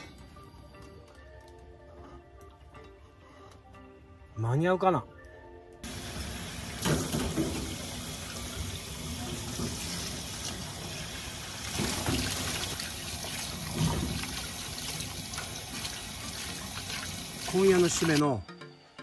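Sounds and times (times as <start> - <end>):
tap water running into sink: 5.8 - 18.2.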